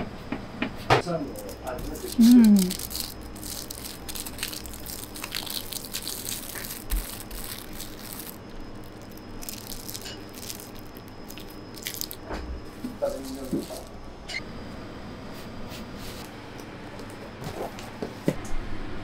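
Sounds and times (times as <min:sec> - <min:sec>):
foil and paper crinkling: 0:01.3 - 0:12.2, 0:13.0 - 0:13.9.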